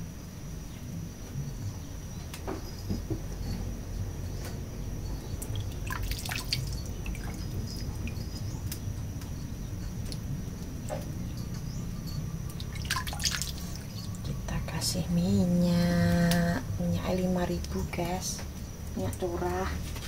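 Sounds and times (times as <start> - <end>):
steady low hum: 0.0 - 20.0
water dripping and splashing: 5.3 - 11.5, 12.4 - 14.3.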